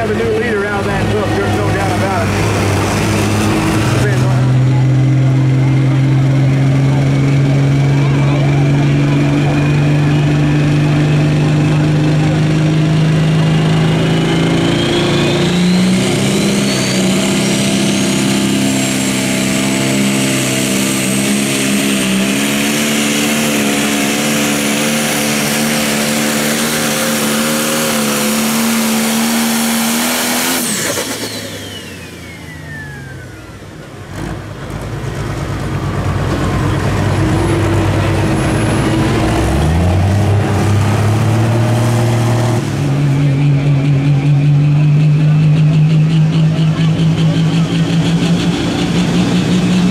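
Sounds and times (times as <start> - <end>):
diesel engine running flat out: 0.0 - 49.9
turbocharger whistle: 13.8 - 33.7.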